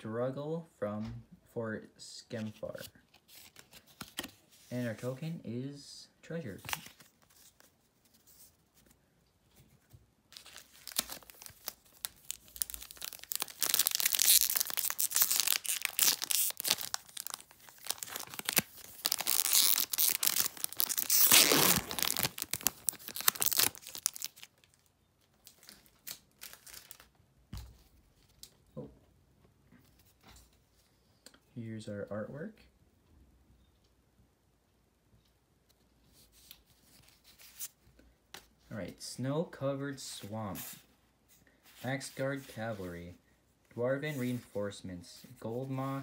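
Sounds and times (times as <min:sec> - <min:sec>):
foil wrapper crinkling and tearing: 0:10.4 - 0:27.1.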